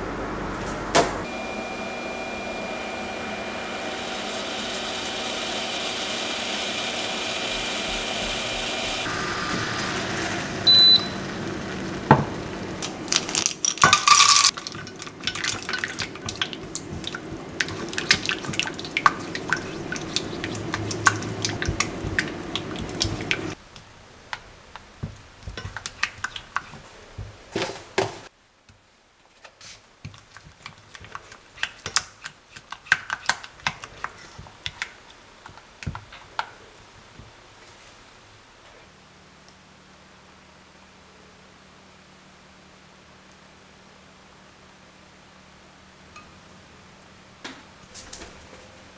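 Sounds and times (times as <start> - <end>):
steady hum: 0.0 - 9.5
spatula stirring in a saucepan: 14.5 - 23.6, 25.4 - 27.8, 29.6 - 36.4.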